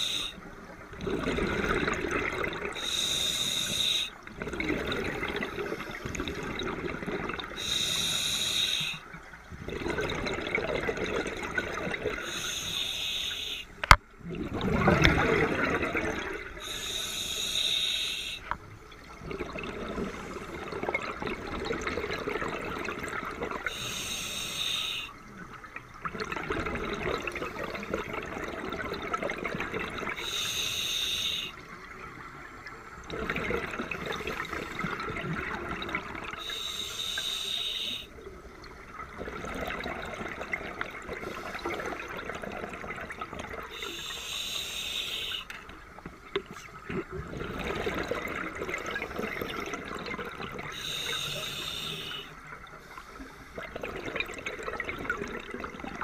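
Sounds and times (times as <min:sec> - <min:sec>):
regulator hissing inhale: 0:00.0 - 0:00.4, 0:02.8 - 0:04.1, 0:07.6 - 0:09.0, 0:12.2 - 0:13.7, 0:16.6 - 0:18.5, 0:23.7 - 0:25.1, 0:30.2 - 0:31.6, 0:36.4 - 0:38.1, 0:43.8 - 0:45.5, 0:50.7 - 0:53.6
exhaled bubbles rushing: 0:00.8 - 0:02.8, 0:04.2 - 0:07.7, 0:09.5 - 0:12.4, 0:14.2 - 0:16.7, 0:18.9 - 0:23.8, 0:25.7 - 0:30.2, 0:33.0 - 0:36.5, 0:38.4 - 0:43.8, 0:46.6 - 0:51.1, 0:53.6 - 0:56.0.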